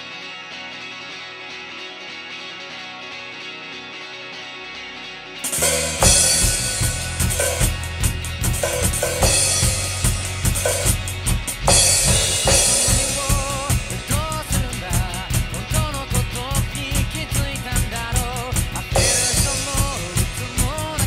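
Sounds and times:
recorded rock song: 0:00.0 - 0:21.0
drum kit playing rock beat: 0:05.4 - 0:21.0
person singing: 0:12.5 - 0:21.0.

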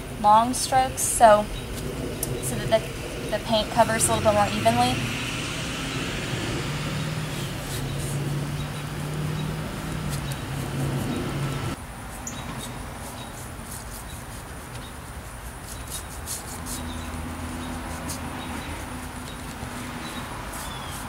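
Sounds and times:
low steady hum: 0:00.0 - 0:11.8
paintbrush strokes on wood: 0:06.7 - 0:21.0.

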